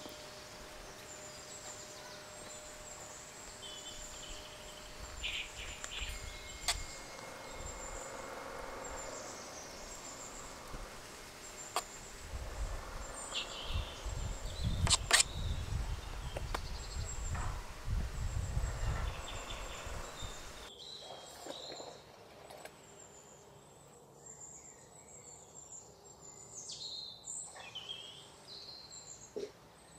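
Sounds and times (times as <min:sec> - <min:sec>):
bird chirps: 0:00.0 - 0:17.5.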